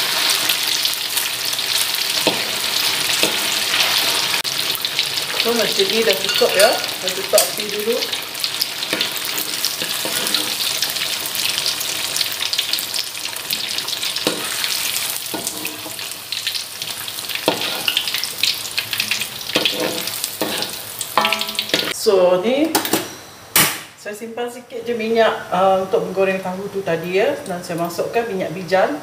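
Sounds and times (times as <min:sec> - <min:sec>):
tofu sizzling in hot oil: 0:00.0 - 0:22.0
metal spatula knocking on wok: 0:21.2 - 0:22.0.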